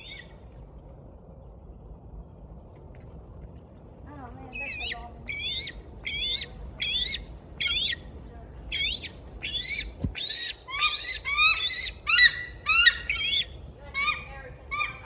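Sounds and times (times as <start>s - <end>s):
eagle calling: 4.5s - 8.1s, 8.7s - 15.0s.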